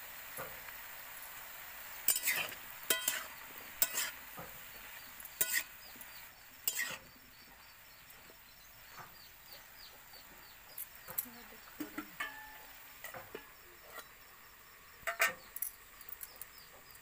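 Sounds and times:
vegetables sizzling: 0.0s - 17.0s
spatula scraping steel pan: 2.1s - 4.2s, 5.3s - 5.8s, 6.6s - 7.1s, 11.8s - 14.2s, 15.0s - 15.5s.

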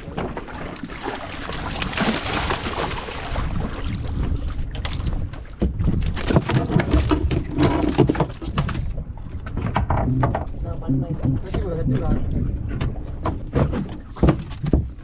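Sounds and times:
fish thrashing on boat floor: 4.7s - 8.9s.

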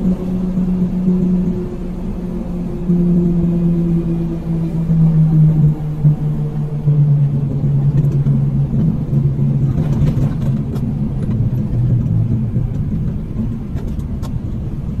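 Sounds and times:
road rumble: 0.0s - 15.0s
vehicle engine hum: 0.0s - 15.0s.

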